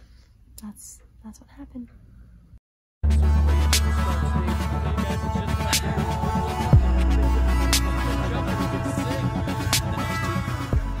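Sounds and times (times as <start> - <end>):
electronic music with deep bass: 3.0 - 11.0.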